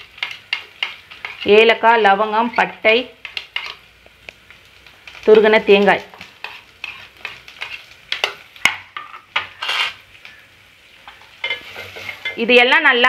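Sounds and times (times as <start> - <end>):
faint sizzle of frying: 0.0 - 13.0.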